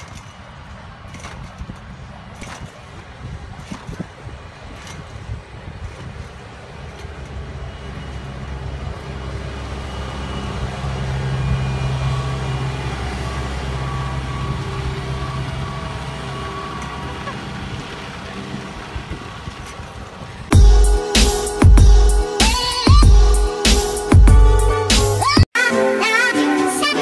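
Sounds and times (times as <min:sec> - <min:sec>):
tractor engine driving past: 0:04.5 - 0:20.6.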